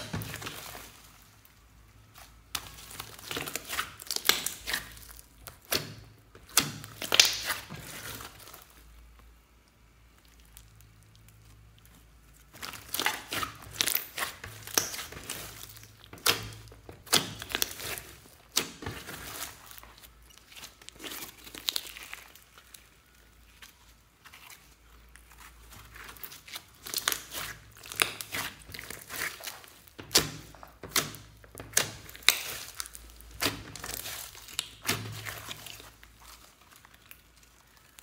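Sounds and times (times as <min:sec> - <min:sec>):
slime squishing and clicking: 0:02.1 - 0:08.5, 0:10.2 - 0:22.8, 0:25.2 - 0:38.0.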